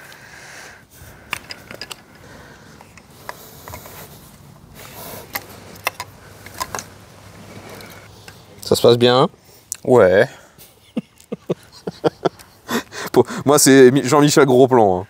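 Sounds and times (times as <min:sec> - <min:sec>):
tools and metal parts clicking: 0:01.2 - 0:02.2, 0:05.2 - 0:06.9.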